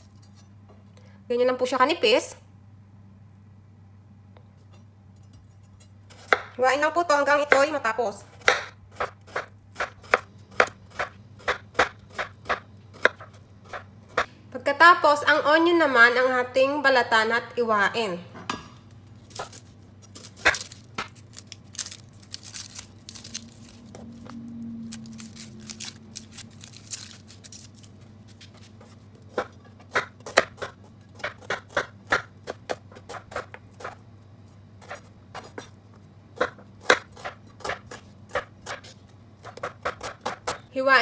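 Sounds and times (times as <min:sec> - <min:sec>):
knife chopping on cutting board: 0:06.2 - 0:06.6, 0:08.4 - 0:14.3, 0:29.3 - 0:34.0, 0:36.4 - 0:40.6.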